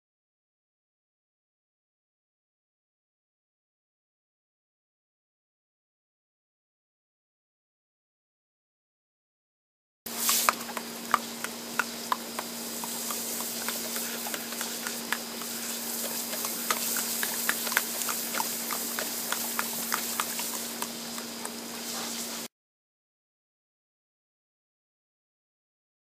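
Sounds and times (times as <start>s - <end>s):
garden hose spray hissing: 10.1s - 22.5s
dog jaws snapping: 10.2s - 21.6s.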